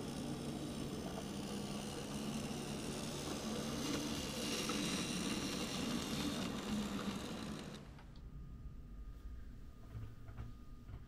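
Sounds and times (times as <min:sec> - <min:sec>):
model train motor humming: 0:00.0 - 0:08.0
wheels rolling on rails: 0:00.0 - 0:08.1.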